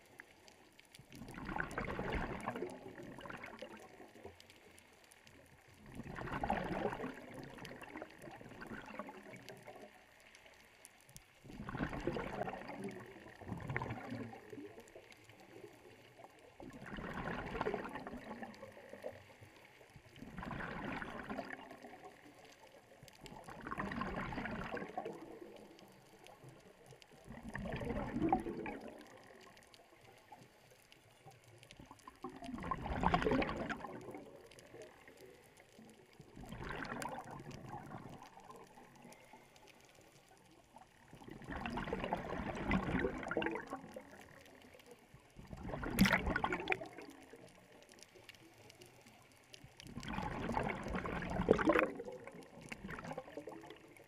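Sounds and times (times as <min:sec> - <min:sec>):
underwater bubbling exhalation: 0:01.1 - 0:04.2, 0:05.8 - 0:09.8, 0:11.4 - 0:15.8, 0:16.5 - 0:19.3, 0:20.2 - 0:22.5, 0:23.2 - 0:25.8, 0:26.7 - 0:29.7, 0:31.8 - 0:39.8, 0:41.0 - 0:48.0, 0:49.8 - 0:54.0.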